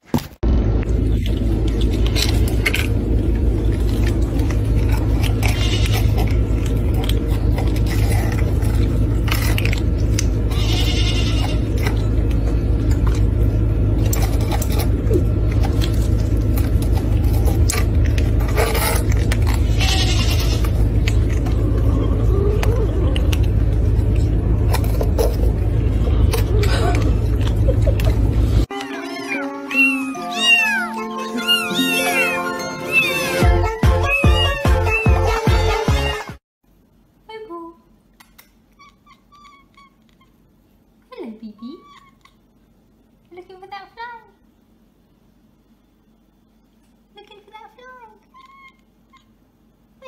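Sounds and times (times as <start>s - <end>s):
low rumble: 0.4s - 28.7s
kittens mewing: 4.8s - 9.6s, 10.2s - 12.1s, 18.5s - 25.0s, 26.3s - 36.3s.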